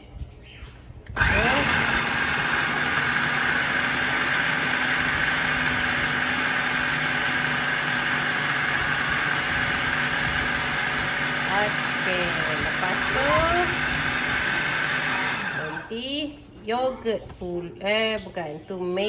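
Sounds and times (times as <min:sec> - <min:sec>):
food processor motor whining: 0:01.1 - 0:15.9.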